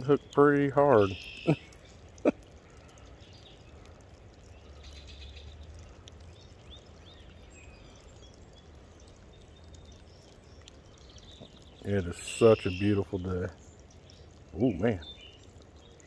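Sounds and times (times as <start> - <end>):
bird chirps: 1.0 - 2.2, 4.4 - 16.0.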